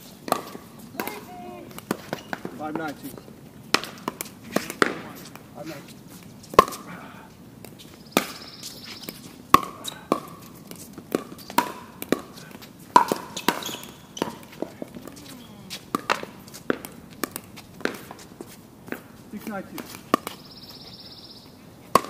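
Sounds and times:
paddles hitting plastic ball: 0.2s - 3.0s, 3.7s - 5.5s, 6.5s - 6.9s, 9.0s - 20.4s.

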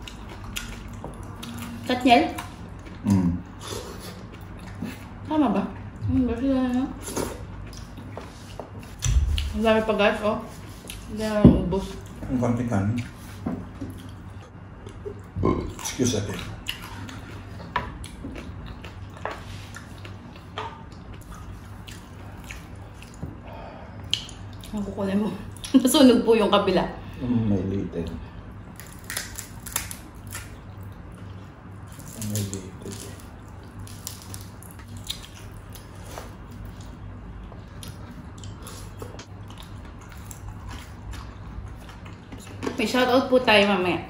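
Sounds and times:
low steady hum: 0.0s - 44.0s
chewing crispy food: 13.8s - 23.2s, 28.7s - 42.6s.

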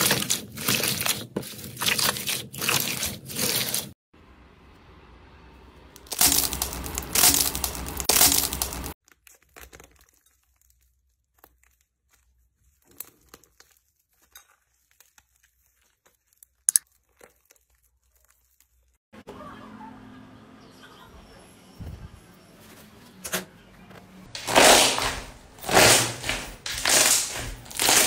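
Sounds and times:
dried slime crust crackling: 6.0s - 19.0s, 24.3s - 28.0s
eggshell crunching: 6.0s - 19.0s, 24.3s - 28.0s.

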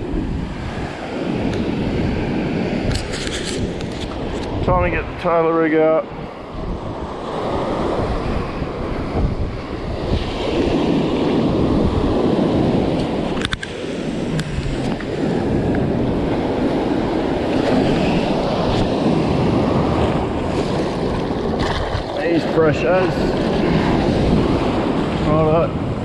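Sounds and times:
wind buffeting microphone: 0.0s - 26.0s
surf breaking: 16.0s - 25.8s.

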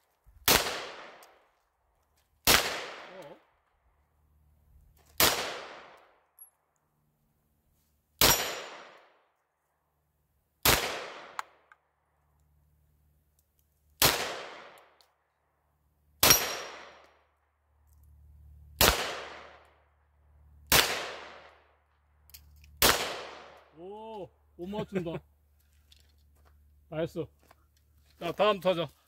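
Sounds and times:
pistol shots with echo: 2.4s - 3.4s, 5.2s - 6.0s, 8.2s - 9.0s, 10.6s - 11.6s, 16.2s - 17.1s, 18.8s - 19.7s, 20.7s - 21.6s, 22.8s - 23.6s.

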